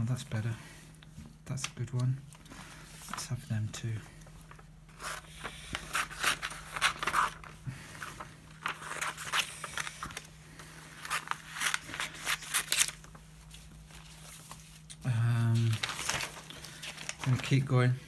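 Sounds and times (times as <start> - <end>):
paper handling: 4.2 - 17.9
scissors cutting paper: 5.0 - 7.4.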